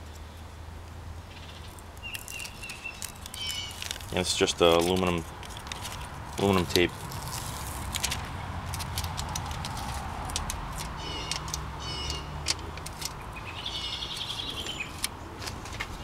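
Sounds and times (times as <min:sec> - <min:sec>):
small bird chirping: 0:01.3 - 0:04.0, 0:10.9 - 0:12.4, 0:13.0 - 0:15.1
foil tape crinkling: 0:01.7 - 0:13.4.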